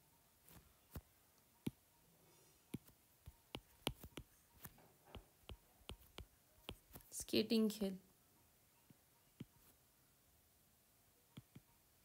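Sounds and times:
stylus tapping on glass screen: 0:02.7 - 0:07.1.

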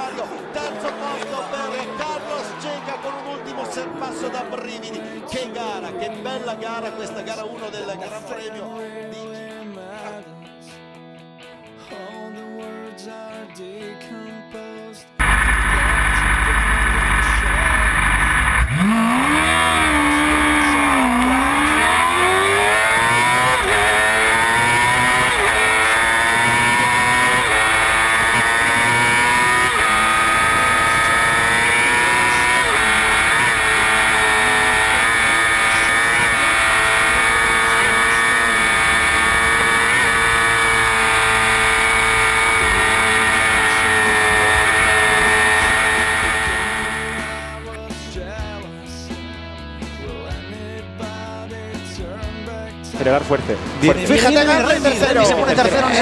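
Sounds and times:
motorcycle engine accelerating: 0:15.2 - 0:47.8.

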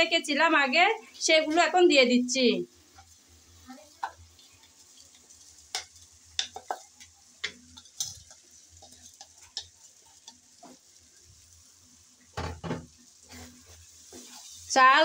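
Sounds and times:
food sizzling in hot oil: 0:00.0 - 0:15.0
oil crackling and popping: 0:02.9 - 0:11.6.

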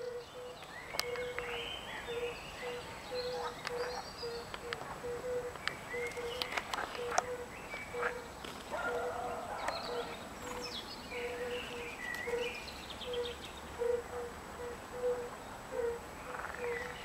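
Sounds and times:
birds chirping and singing: 0:00.0 - 0:17.0
toads calling: 0:00.0 - 0:17.0.

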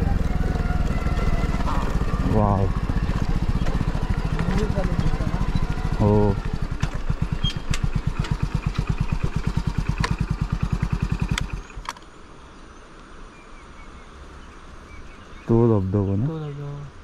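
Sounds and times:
vehicle engine idling: 0:00.0 - 0:11.9
faint outdoor background: 0:00.0 - 0:17.0.

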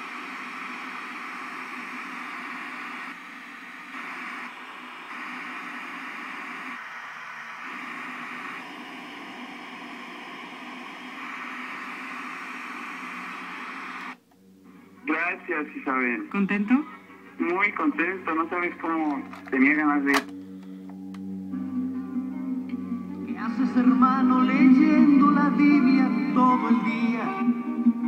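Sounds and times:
radio static hiss: 0:00.0 - 0:20.3.

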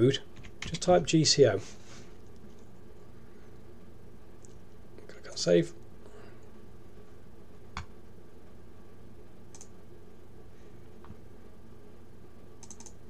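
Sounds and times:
steady low hum: 0:00.0 - 0:13.0
computer mouse clicks: 0:09.5 - 0:09.7, 0:12.6 - 0:13.0.

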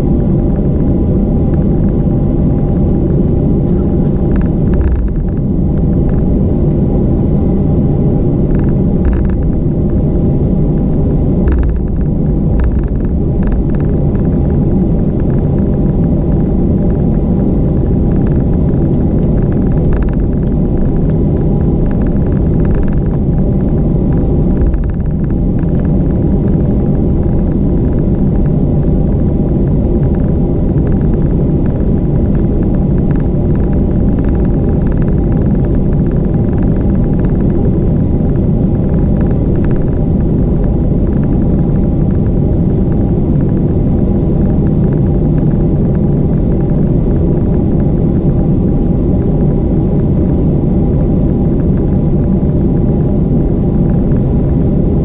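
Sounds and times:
aircraft cabin rumble: 0:00.0 - 0:55.0.

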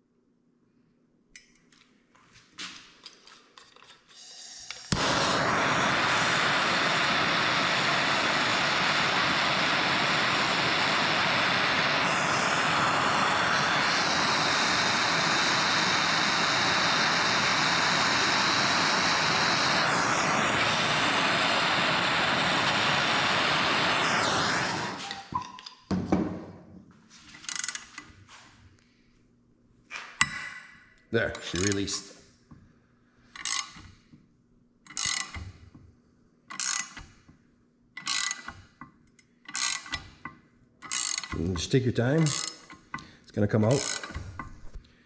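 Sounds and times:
hand torch hissing: 0:04.0 - 0:25.5, 0:31.4 - 0:32.1, 0:40.9 - 0:44.8.

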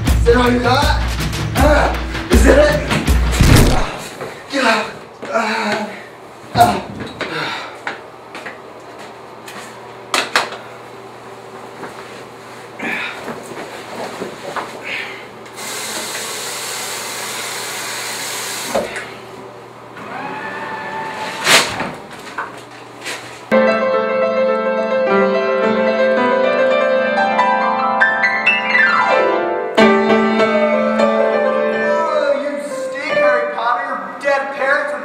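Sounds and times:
sharp thump: 0:03.3 - 0:04.0
scuffling knocks: 0:03.3 - 0:04.4
piano music: 0:23.5 - 0:34.2.

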